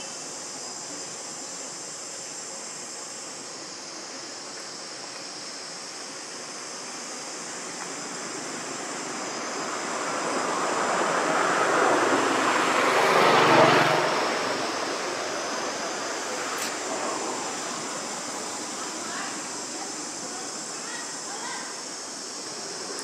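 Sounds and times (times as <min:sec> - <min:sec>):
steady high hiss: 0:00.0 - 0:23.0
engine passing by: 0:08.9 - 0:17.9.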